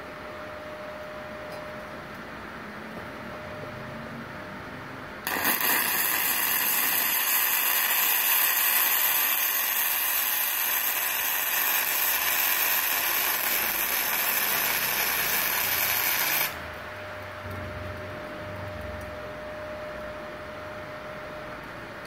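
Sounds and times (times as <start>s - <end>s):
welding arc hissing: 5.2s - 16.7s.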